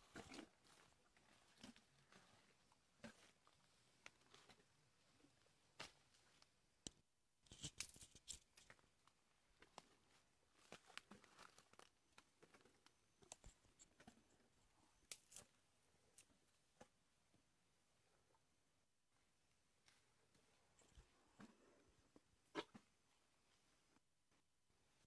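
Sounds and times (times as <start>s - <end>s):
elephant crunching leaves and twigs: 9.6s - 12.9s.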